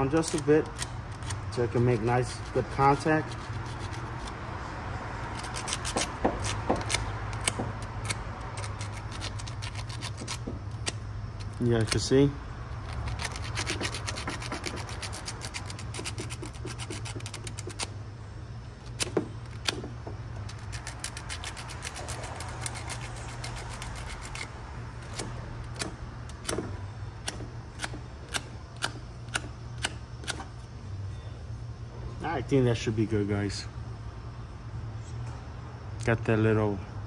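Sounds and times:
sanding cable by hand: 0.0s - 4.4s, 5.3s - 12.1s, 12.8s - 17.9s, 18.9s - 25.8s.

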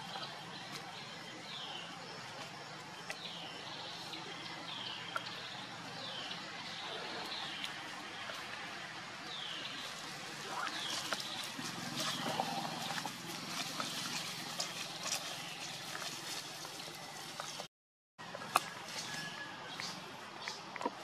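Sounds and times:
dry leaves crackling and rustling: 9.7s - 17.6s.

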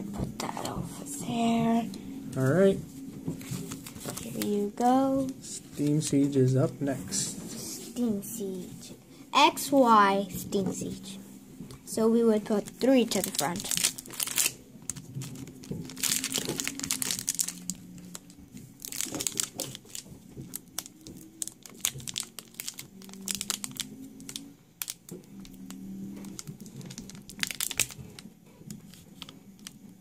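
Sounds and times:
foil wrapper crinkling and tearing: 3.4s - 5.4s, 12.5s - 29.9s.

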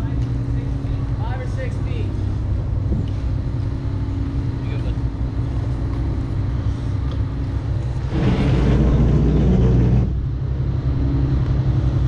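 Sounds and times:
marine diesel engines idling: 0.0s - 12.0s
loud rushing noise: 7.9s - 10.8s.

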